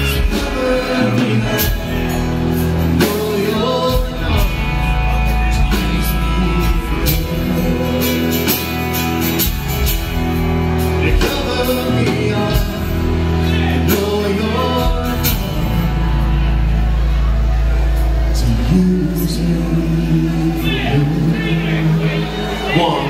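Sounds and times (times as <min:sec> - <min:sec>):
person singing: 0:00.0 - 0:09.6, 0:10.6 - 0:17.3, 0:18.2 - 0:23.0
rock band playing: 0:00.0 - 0:23.0.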